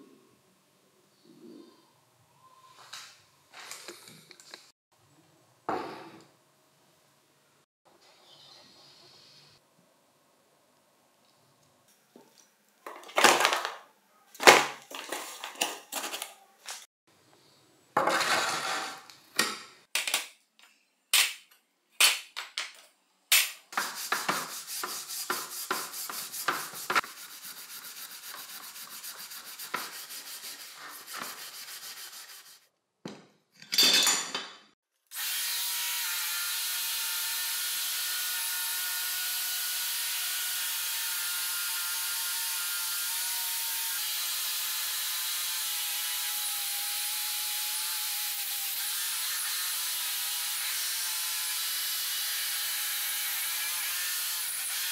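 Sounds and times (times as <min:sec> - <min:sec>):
scouring pad scrubbing metal: 0:23.8 - 0:32.6
angle grinder with wire wheel: 0:35.2 - 0:54.9.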